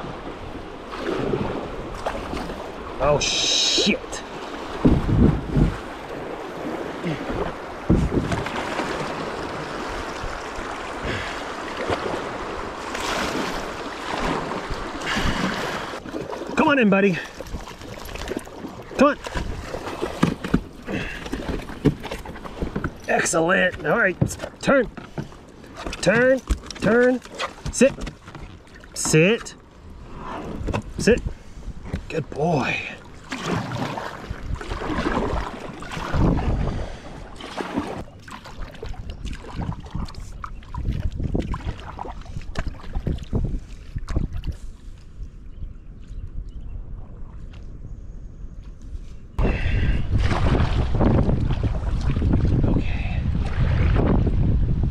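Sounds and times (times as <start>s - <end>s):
wind on microphone: 0.0s - 16.0s, 29.8s - 32.1s, 33.4s - 54.9s
river water rushing and splashing: 0.0s - 21.0s
water splashing around kayak: 0.0s - 45.4s, 49.4s - 54.9s
low knocks against hull: 4.8s - 5.8s, 7.4s - 8.6s, 19.2s - 23.1s.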